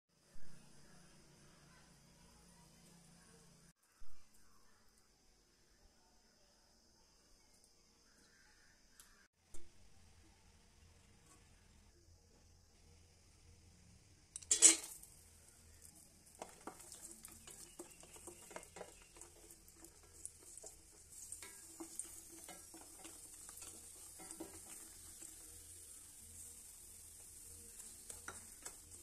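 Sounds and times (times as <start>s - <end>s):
steady frying sizzle: 7.5s - 29.0s
nuts sizzling in hot oil: 8.0s - 29.0s
spatula scraping steel pan: 14.4s - 15.1s, 16.4s - 26.6s.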